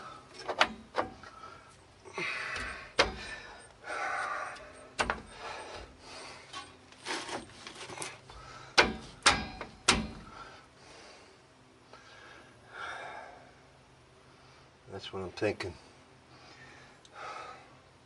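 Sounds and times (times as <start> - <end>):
metallic clicks of drum brake parts: 0.0 - 1.4, 2.5 - 10.4.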